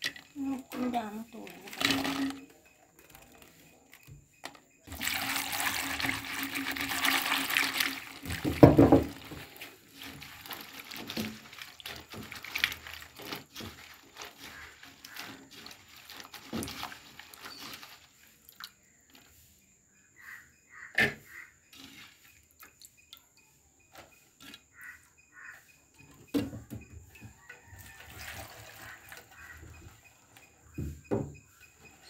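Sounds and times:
faint clicks and rustles: 0:00.0 - 0:04.8, 0:05.6 - 0:19.4
liquid pouring from a bottle: 0:01.5 - 0:02.5, 0:04.9 - 0:18.8, 0:27.8 - 0:30.0.

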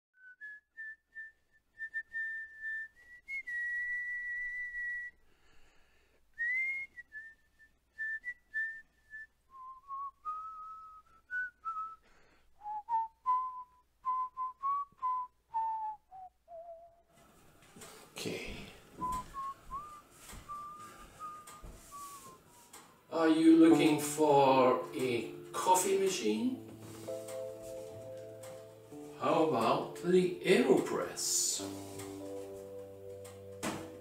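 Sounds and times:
person whistling a slow tune: 0:00.2 - 0:05.2, 0:06.4 - 0:17.0, 0:19.0 - 0:22.7.

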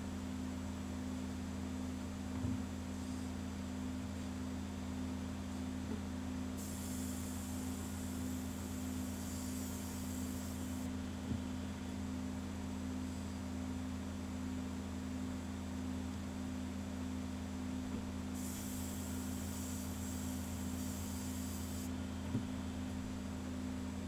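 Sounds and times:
airbrush spraying hiss: 0:06.6 - 0:10.9, 0:18.4 - 0:21.9.

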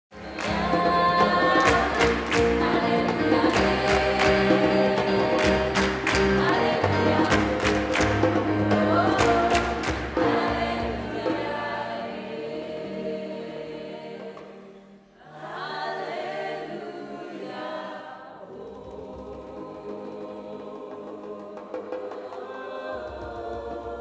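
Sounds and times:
choir singing in harmony: 0:00.1 - 0:24.0
sharp percussive hits: 0:00.2 - 0:11.6.

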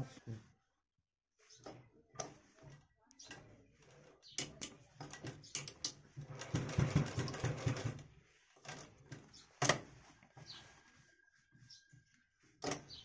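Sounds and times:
sewing machine stitching: 0:01.6 - 0:09.9
cloth rustling: 0:06.0 - 0:13.0.

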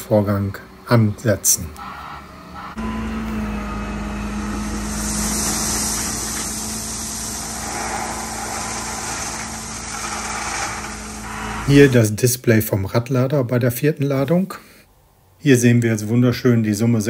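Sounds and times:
diesel engine humming: 0:00.0 - 0:12.1
stones pouring into trailer: 0:04.5 - 0:12.0.

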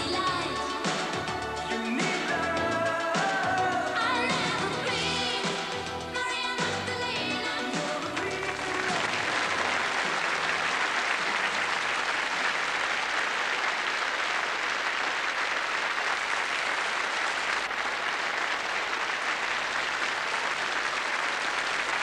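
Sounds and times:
audience applauding: 0:08.2 - 0:22.0.

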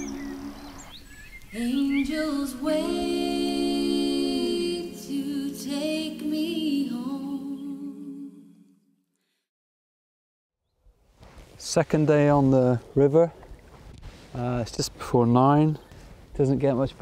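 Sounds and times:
voices singing held notes: 0:01.5 - 0:08.7.

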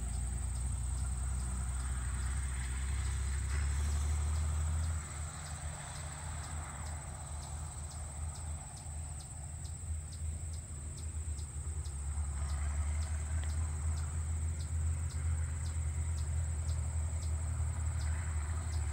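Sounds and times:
distant tractor rumble: 0:00.0 - 0:18.9
insect chirps: 0:00.0 - 0:18.9
insects droning: 0:00.0 - 0:18.9.

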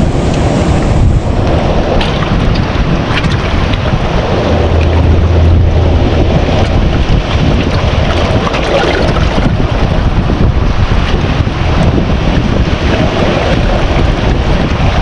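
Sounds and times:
wind rumble on microphone: 0:00.0 - 0:15.0
sea water lapping on rocks: 0:01.4 - 0:15.0.

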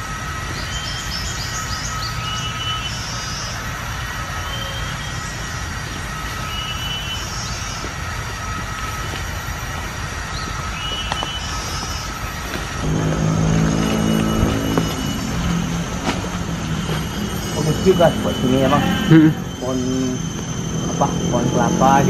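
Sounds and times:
low rumble: 0:12.6 - 0:22.0
run of short high notes: 0:12.8 - 0:22.0
high-pitched animal calls: 0:13.1 - 0:21.6.

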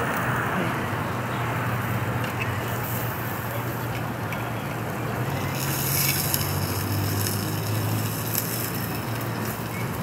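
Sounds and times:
food sizzling on a grill: 0:05.2 - 0:10.0.

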